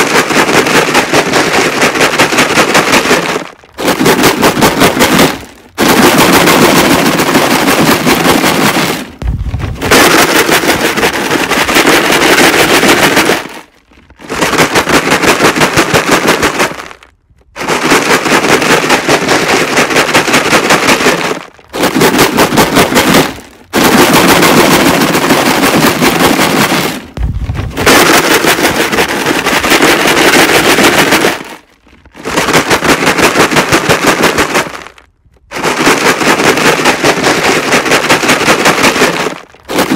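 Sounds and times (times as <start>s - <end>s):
rocks rattling in plastic jug: 0.0s - 39.9s.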